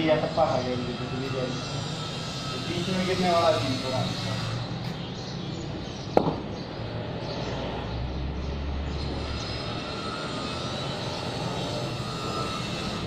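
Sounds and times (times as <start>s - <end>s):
sharp knock with ringing: 6.2s - 6.5s.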